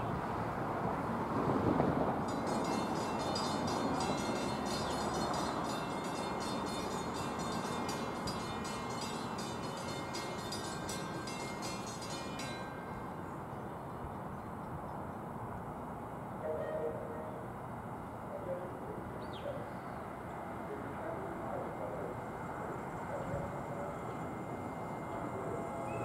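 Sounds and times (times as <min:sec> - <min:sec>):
train rumble: 0:00.0 - 0:26.0
crossing bell ringing rapidly: 0:02.2 - 0:13.4, 0:21.2 - 0:26.0.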